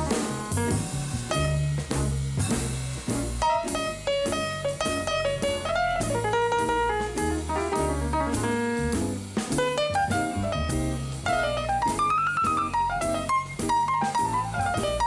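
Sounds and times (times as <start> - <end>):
double bass notes: 0.0 - 15.0
drum kit keeping time: 0.0 - 15.0
grand piano solo: 0.0 - 15.0.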